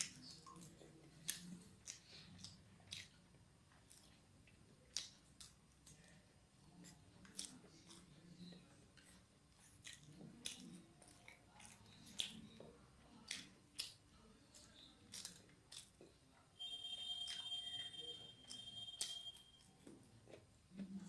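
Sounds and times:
person chewing: 0.0s - 21.0s
high-pitched tone: 16.6s - 19.7s.

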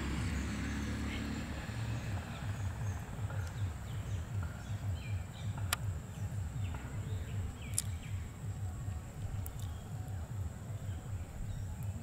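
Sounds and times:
pulsing low rumble: 0.0s - 12.0s
faint bird chirps: 0.3s - 12.0s
sharp clicks: 7.6s - 8.1s.

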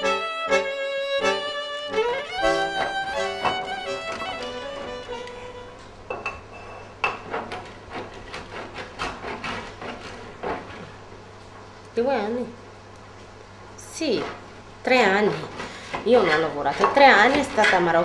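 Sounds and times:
violin music: 0.0s - 5.9s
kitchen work knocks and clatter: 2.7s - 3.8s, 6.1s - 10.9s, 15.2s - 18.0s.

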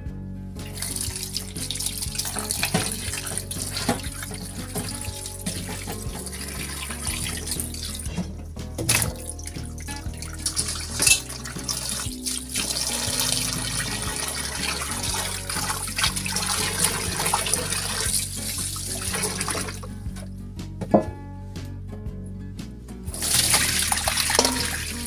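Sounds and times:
hands squeezing wet meat: 0.7s - 8.2s, 8.9s - 19.8s, 23.1s - 25.0s
tap water splashing into sink: 0.7s - 19.9s, 23.1s - 25.0s.

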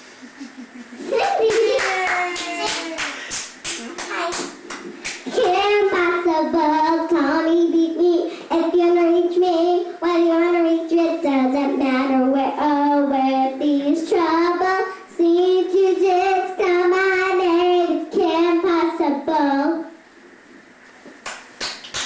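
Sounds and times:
girl singing into microphone: 5.4s - 19.9s.

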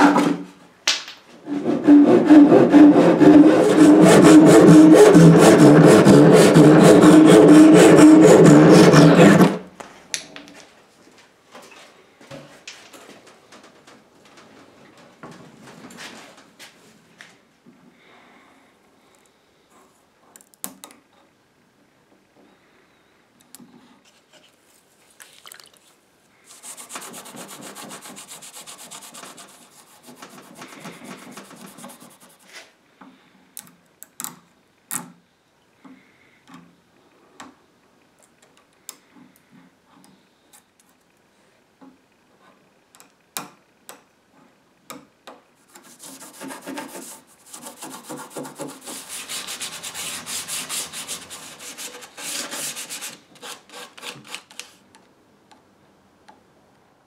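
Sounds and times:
pad scrubbing wood: 1.5s - 9.6s, 26.5s - 32.5s, 45.7s - 53.8s.

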